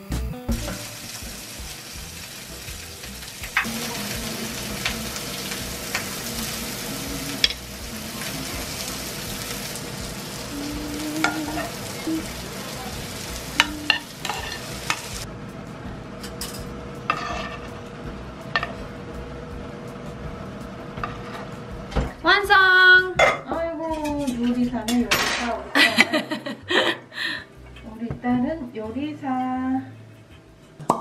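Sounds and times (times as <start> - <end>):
food sizzling in a frying pan: 0.5 - 15.3.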